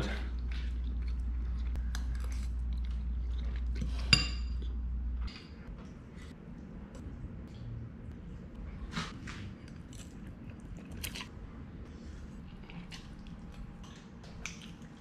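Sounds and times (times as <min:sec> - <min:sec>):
chewing: 0:00.3 - 0:04.8, 0:09.0 - 0:11.4, 0:12.2 - 0:15.0.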